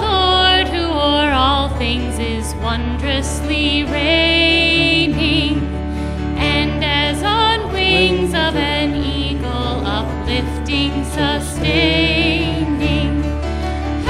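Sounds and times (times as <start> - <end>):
acoustic guitar: 0.0 - 14.0
voices singing with vibrato: 6.4 - 13.4.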